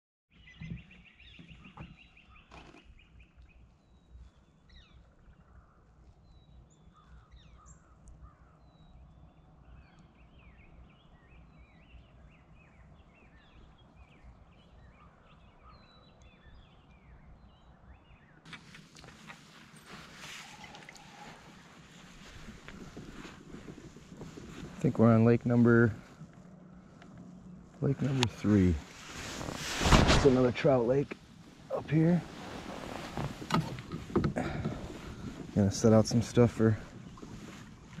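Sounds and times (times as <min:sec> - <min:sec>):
songbirds chirping and singing: 0:00.3 - 0:18.5.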